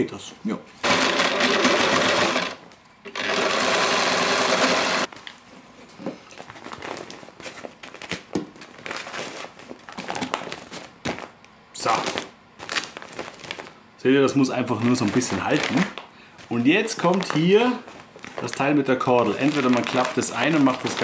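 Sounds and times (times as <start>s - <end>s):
sewing machine running: 0.8s - 5.1s
fabric and plastic bag rustling: 6.3s - 13.8s, 14.7s - 21.0s.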